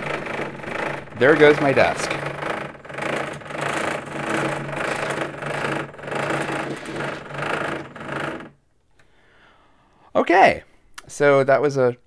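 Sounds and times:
vibrating motors buzzing on desk: 0.0 - 8.6
steady low hum: 0.0 - 8.7.

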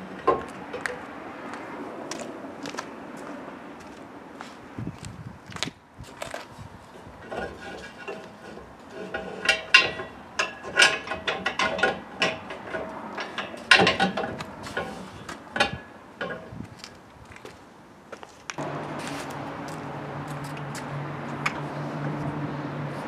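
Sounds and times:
metal bars clanking and rattling: 7.2 - 16.6.

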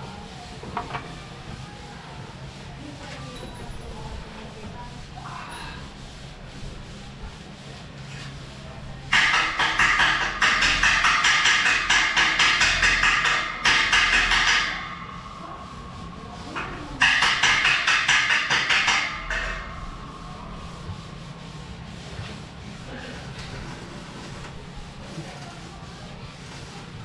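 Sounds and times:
hand rasping on steel railing: 9.1 - 15.2, 16.5 - 26.9.

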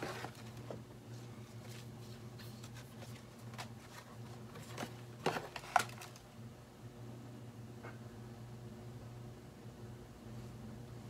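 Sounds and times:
low steady hum: 0.0 - 11.0
small items clicking and rustling: 2.7 - 6.2.

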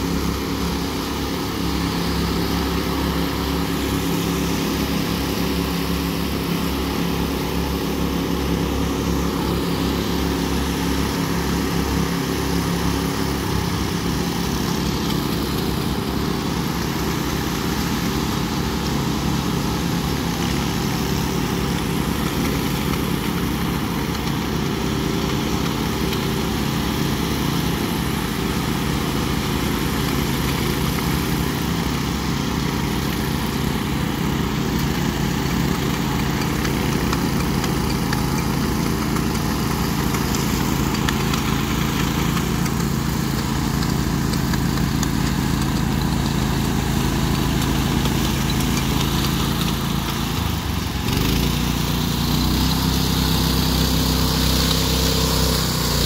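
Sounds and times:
power trowel engines running: 0.0 - 56.0.

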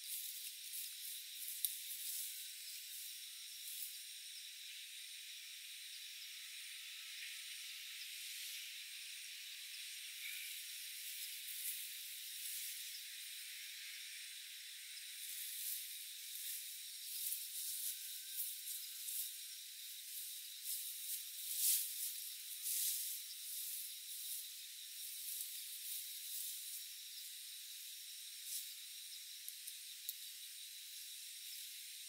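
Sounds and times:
rustles and steps in tall grass: 0.0 - 3.9, 15.2 - 19.4, 20.1 - 26.8
high-pitched insect chorus: 0.0 - 32.0.

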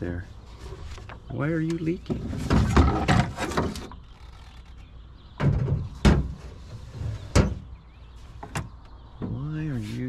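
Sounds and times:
hard objects clunking: 0.9 - 4.2.

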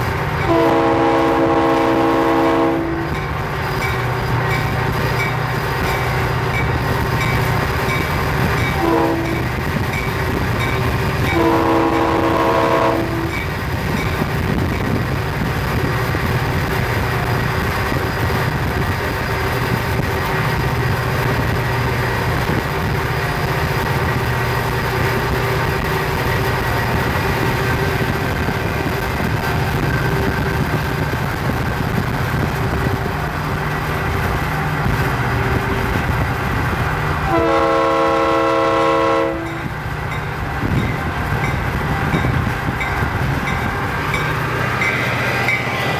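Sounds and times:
diesel locomotives rumbling: 0.0 - 45.9
locomotive air horn blasts: 0.4 - 3.2, 8.8 - 9.6, 11.3 - 13.4, 37.2 - 39.8.

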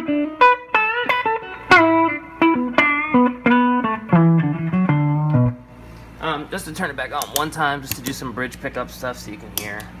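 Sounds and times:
clean electric guitar lead: 0.0 - 5.7.

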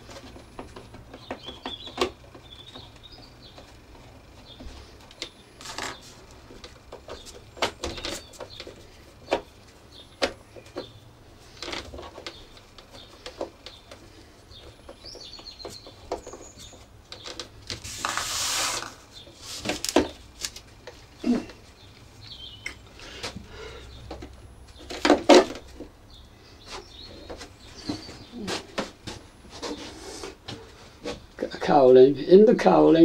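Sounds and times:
scraping rustle: 10.5 - 21.8, 26.6 - 31.3.

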